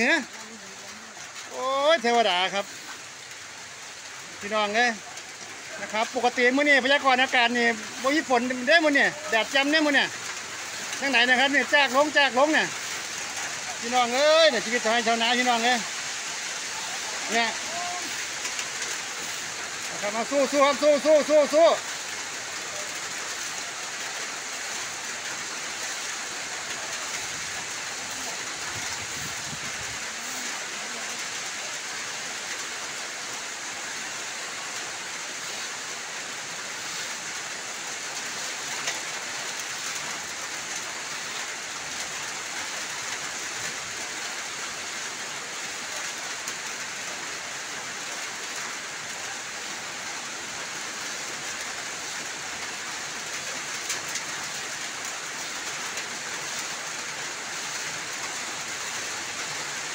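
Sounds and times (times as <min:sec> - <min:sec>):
rain on wet concrete: 0:00.0 - 0:59.9.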